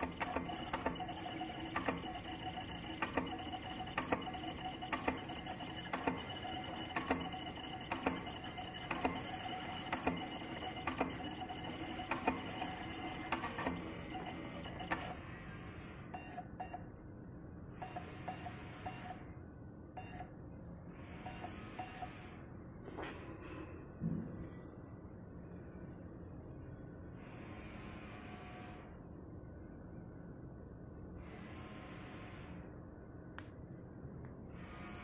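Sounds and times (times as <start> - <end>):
cutting plotter motors running: 0.0 - 15.2
sharp plotter clicks: 0.0 - 15.2.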